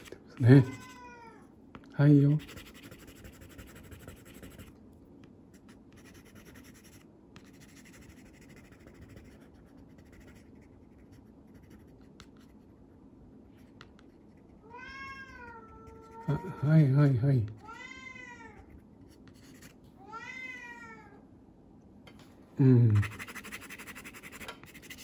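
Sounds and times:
pencil scratching on paper: 0:02.2 - 0:04.7, 0:05.5 - 0:12.7, 0:19.0 - 0:19.8, 0:23.0 - 0:25.0.

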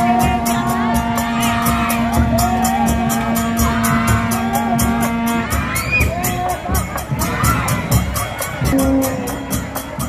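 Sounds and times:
low horn drone: 0:00.0 - 0:05.9
drum beats: 0:00.0 - 0:10.0
fast high jingling beat: 0:00.0 - 0:10.0
voices calling and whooping: 0:00.0 - 0:10.0.

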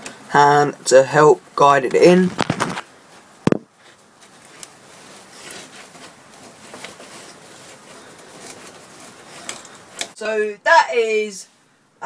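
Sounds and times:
faint rustling: 0:01.9 - 0:10.2.

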